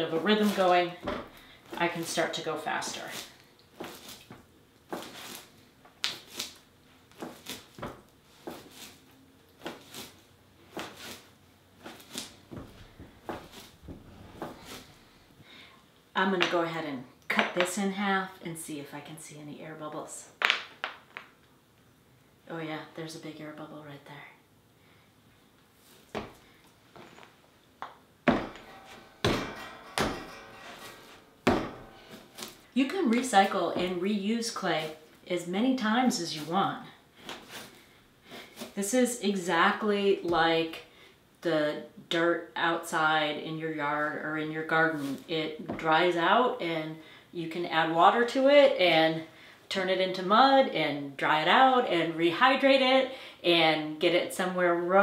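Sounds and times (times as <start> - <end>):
clay thumping and scuffing on board: 9.6 - 14.9.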